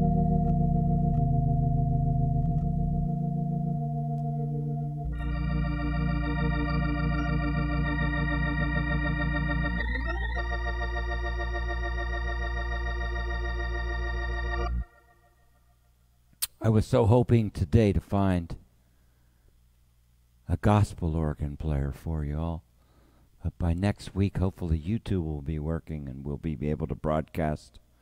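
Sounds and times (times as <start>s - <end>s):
organ sustained chords: 0.0s - 16.0s.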